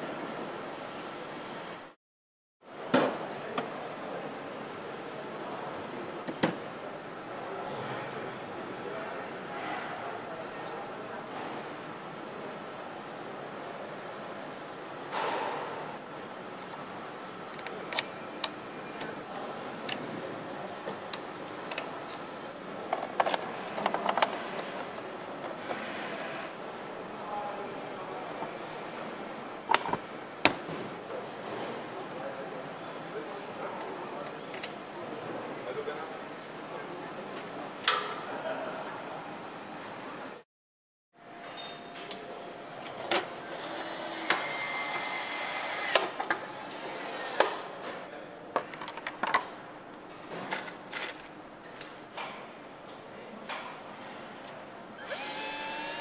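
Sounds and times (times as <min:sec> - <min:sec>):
power tool whining: 0:55.0 - 0:56.0.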